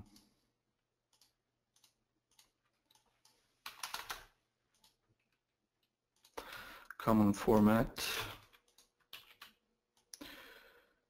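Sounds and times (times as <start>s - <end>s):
computer keyboard typing: 1.1s - 5.0s, 8.2s - 10.2s.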